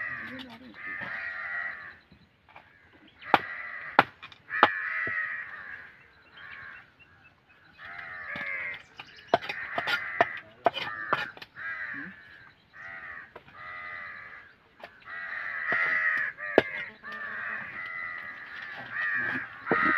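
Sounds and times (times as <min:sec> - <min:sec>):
crows cawing: 0:00.0 - 0:19.9.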